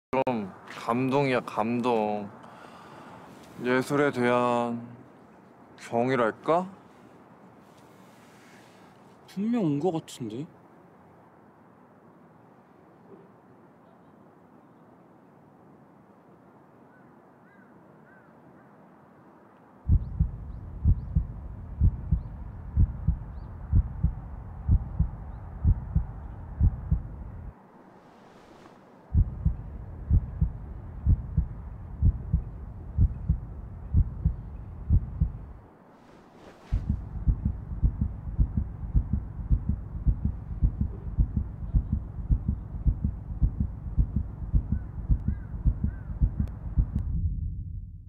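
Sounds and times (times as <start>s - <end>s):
soft hiss: 0.2s - 16.9s, 18.9s - 45.3s
heartbeat thumping: 19.9s - 27.5s, 29.1s - 35.6s, 36.7s - 48.0s.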